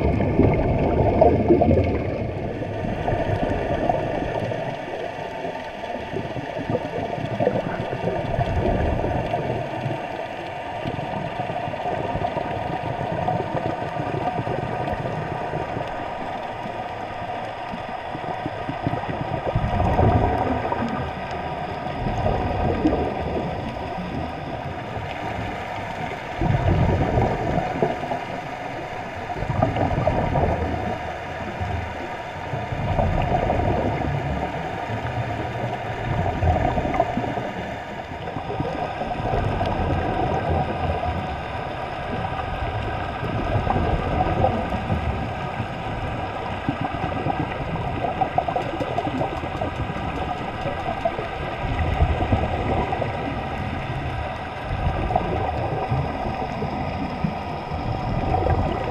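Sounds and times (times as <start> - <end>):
muffled underwater water rushing: 0.0 - 58.9.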